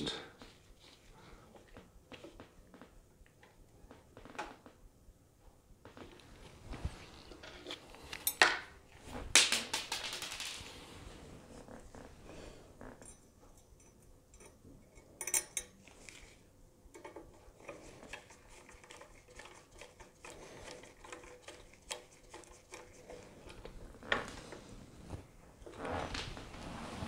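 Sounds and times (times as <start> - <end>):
small metal clicks and clinks: 13.0 - 15.8.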